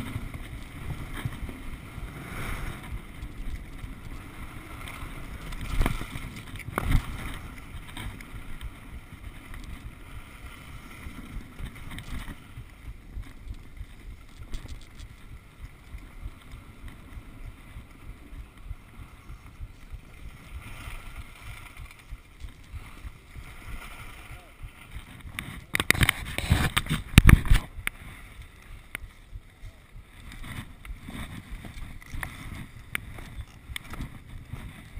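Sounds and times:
skis sliding over snow: 0:00.0 - 0:34.9
wind buffeting microphone: 0:00.0 - 0:34.9.

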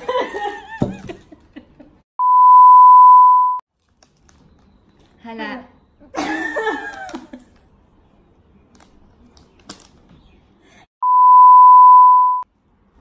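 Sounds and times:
electronic test-tone beep: 0:02.2 - 0:03.6, 0:11.0 - 0:12.4.

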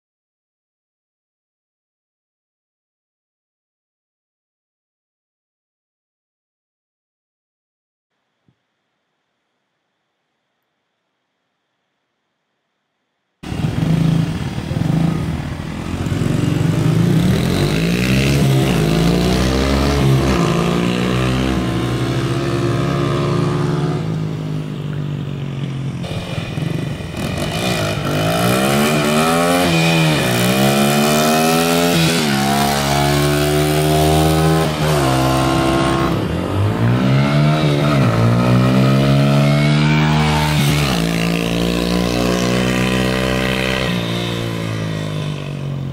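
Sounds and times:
dirt bike engine revving: 0:13.4 - 0:24.2, 0:26.0 - 0:45.6.

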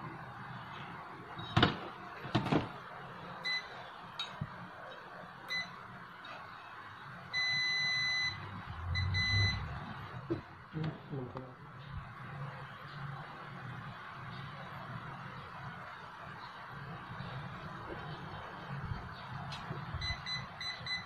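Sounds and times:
multimeter buzzer beeping: 0:05.5 - 0:05.8, 0:07.3 - 0:09.7, 0:20.0 - 0:21.0.

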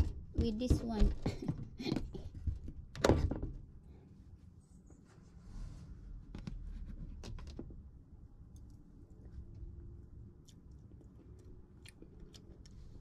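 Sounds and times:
thump: 0:03.0 - 0:03.6.

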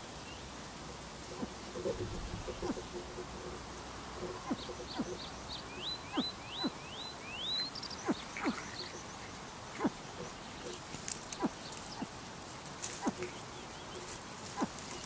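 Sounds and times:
chicks peeping: 0:01.3 - 0:09.1.

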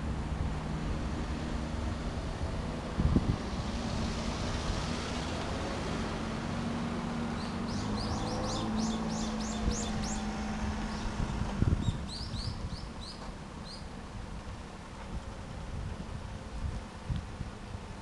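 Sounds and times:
small bird chirping: 0:07.4 - 0:10.3, 0:11.8 - 0:13.9.

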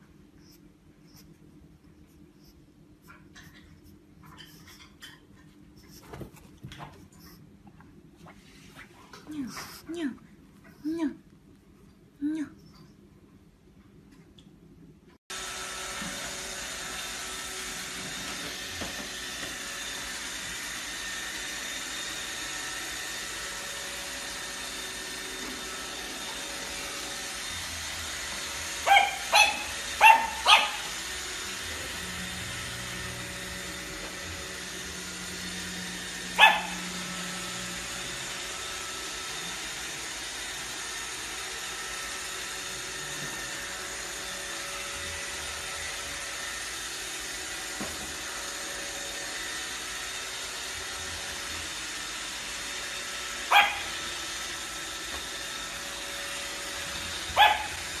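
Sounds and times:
robot vacuum whirring: 0:15.3 - 0:58.0
dog barking: 0:28.8 - 0:30.9, 0:36.4 - 0:36.9, 0:53.5 - 0:54.0, 0:57.3 - 0:57.9.

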